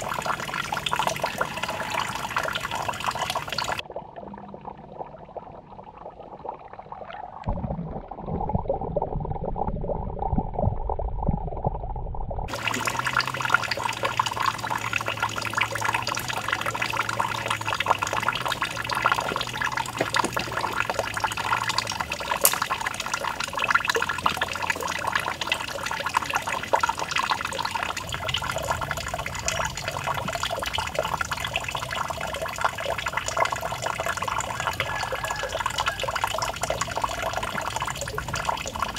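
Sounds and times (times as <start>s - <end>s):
fountain water trickling into pool: 0.0s - 10.4s, 12.5s - 38.9s
muffled underwater sound: 0.0s - 22.4s.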